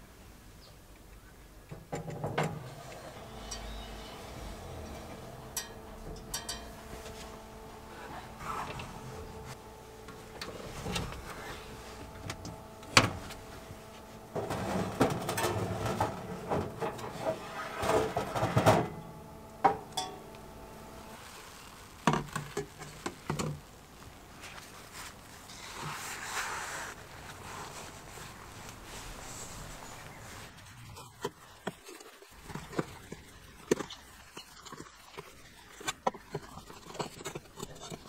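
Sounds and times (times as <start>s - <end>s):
metal clanks and rattles: 1.7s - 20.4s
oven humming: 1.7s - 24.4s.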